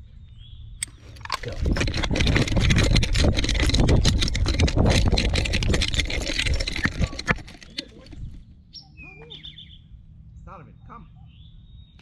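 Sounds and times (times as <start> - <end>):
collar camera knocks and scratches: 1.0 - 8.4.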